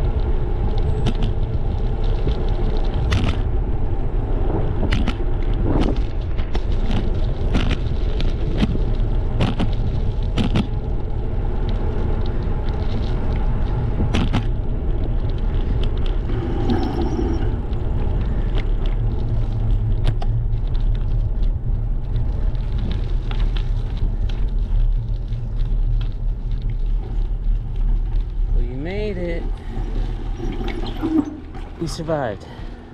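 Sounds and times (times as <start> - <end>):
bike clicks and rattles: 0.0 - 3.6, 4.8 - 16.3, 17.8 - 28.4
bicycle tyre noise: 0.0 - 32.9
wind rumbling on microphone: 0.0 - 32.9.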